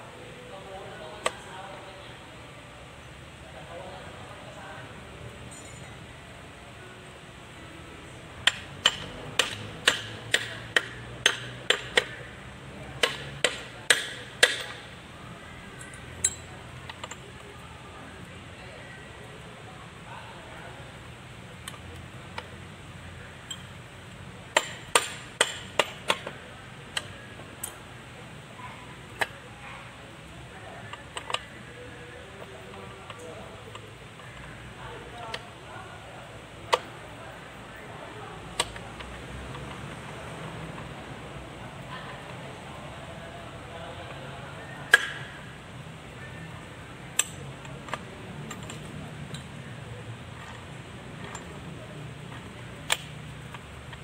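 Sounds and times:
metallic clinks of steel gears: 0:05.4 - 0:06.1, 0:15.8 - 0:17.2.

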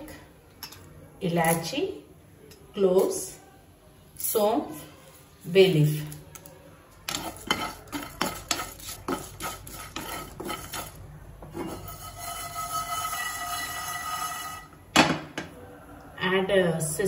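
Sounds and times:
spices rattling in shaken pan: 0:07.1 - 0:11.0
spatula scraping frying pan: 0:07.1 - 0:14.7.

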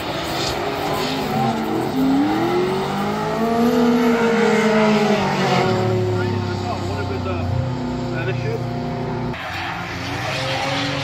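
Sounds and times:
car engines revving hard: 0:00.0 - 0:11.0.

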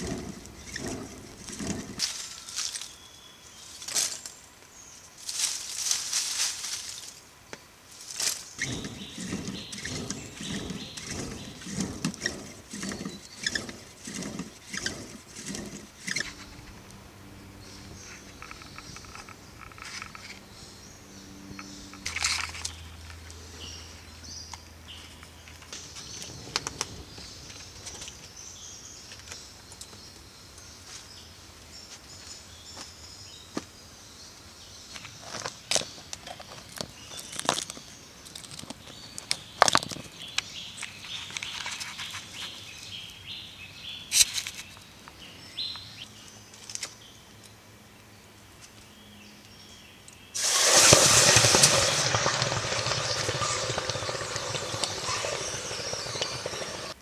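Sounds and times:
charcoal embers raked crackling: 0:00.0 - 0:03.0, 0:08.0 - 0:16.8, 0:50.4 - 0:57.0
birds calling: 0:00.0 - 0:04.3, 0:08.3 - 0:29.3, 0:50.3 - 0:57.0
loud steady rushing noise: 0:50.4 - 0:57.0.

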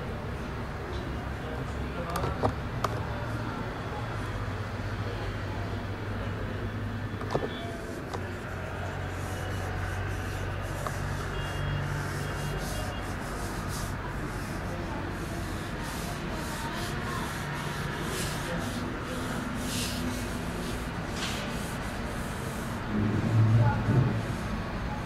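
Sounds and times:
pen scratching on paper: 0:07.3 - 0:22.9.

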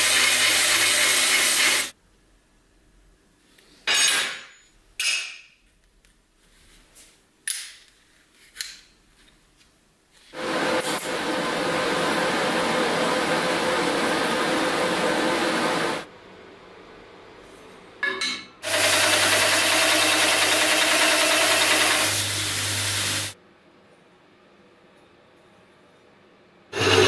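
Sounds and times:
welding arc hissing: 0:00.0 - 0:02.0, 0:18.6 - 0:23.4.

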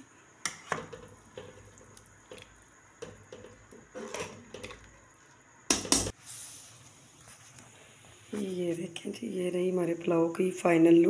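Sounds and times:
pot of stock boiling: 0:00.0 - 0:08.3.

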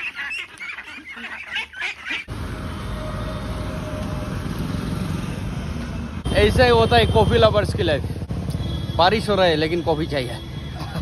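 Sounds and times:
ducks quacking: 0:00.0 - 0:02.3
outdoor rumble: 0:02.3 - 0:06.3.

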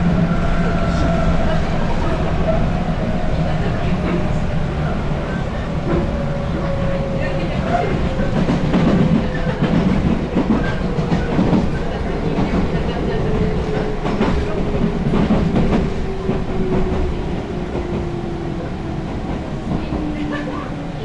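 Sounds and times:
train rumble inside carriage: 0:00.0 - 0:21.0.

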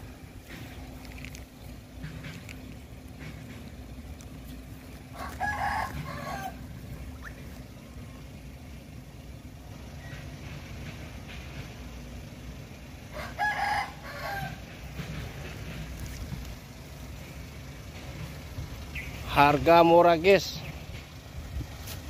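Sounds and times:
steady low hum: 0:00.0 - 0:13.1
rooster crowing: 0:05.1 - 0:06.8, 0:13.1 - 0:14.7.

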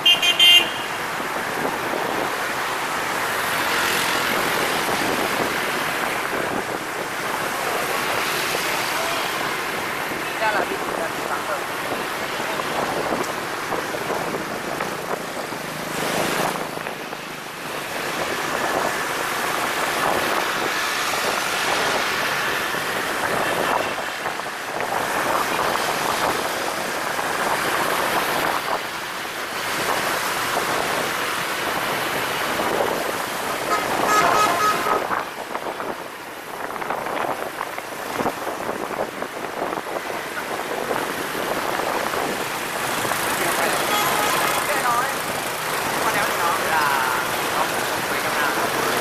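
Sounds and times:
vehicle horn short beeps: 0:00.0 - 0:00.9, 0:33.7 - 0:35.0
street traffic noise: 0:00.0 - 0:49.0
wind rush: 0:00.9 - 0:49.0.

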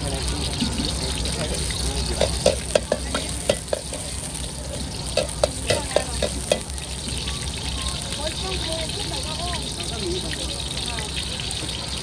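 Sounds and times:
food sizzling in hot oil: 0:00.0 - 0:12.0
steel ladle clanking on a wok: 0:02.1 - 0:06.7.

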